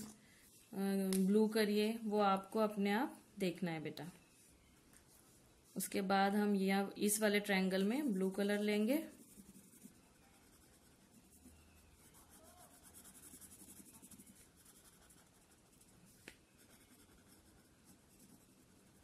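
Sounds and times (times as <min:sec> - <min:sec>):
felt-tip pen scratching on paper: 0:07.9 - 0:19.0.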